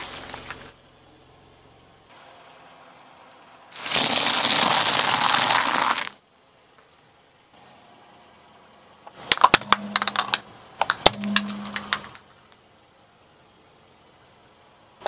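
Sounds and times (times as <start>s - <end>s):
chips crushed under car tyre: 3.8s - 6.2s.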